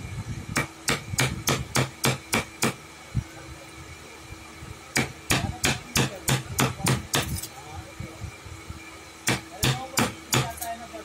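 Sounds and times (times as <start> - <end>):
hammering on wood: 0.6 - 2.8, 4.9 - 7.4, 9.2 - 10.6.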